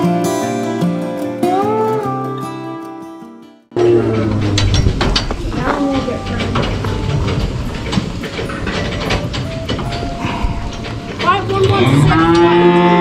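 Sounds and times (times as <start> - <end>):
cattle knocking in steel pen: 3.8 - 13.0
cow mooing: 9.9 - 13.0.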